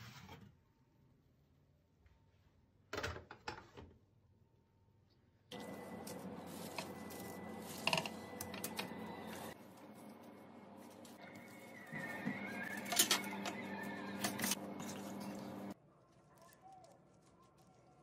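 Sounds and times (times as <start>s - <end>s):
clicks and rustles on baking paper: 14.3s - 18.0s.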